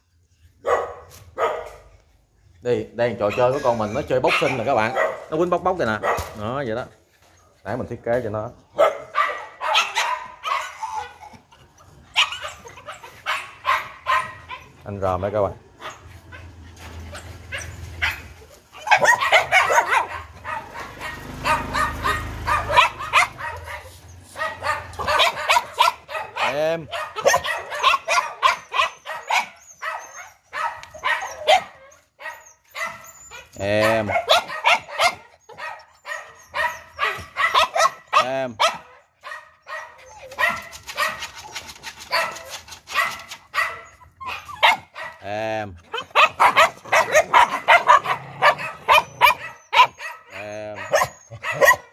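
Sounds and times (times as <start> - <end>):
young dogs barking: 0.6 - 2.0, 3.1 - 6.4, 8.6 - 51.9
puppies whining and yelping: 3.2 - 4.8, 10.3 - 13.4, 15.8 - 26.1, 27.2 - 38.3, 38.9 - 44.9, 45.9 - 51.9.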